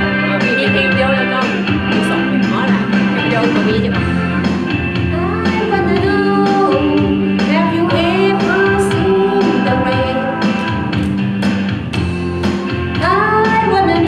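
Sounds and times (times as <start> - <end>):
woman singing into microphone: 0.0 - 4.3, 5.1 - 10.8, 12.9 - 14.0
backing track: 0.0 - 14.0.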